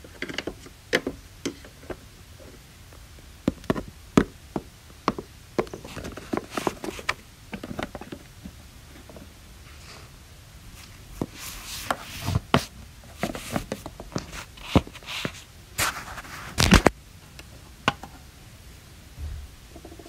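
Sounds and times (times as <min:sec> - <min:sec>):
plastic toys clicking and scraping: 0:00.0 - 0:02.0.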